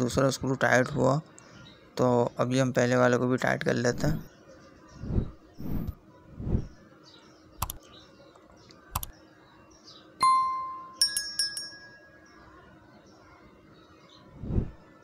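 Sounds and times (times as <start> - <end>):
light clicks: 7.6 - 7.8, 8.4 - 9.1.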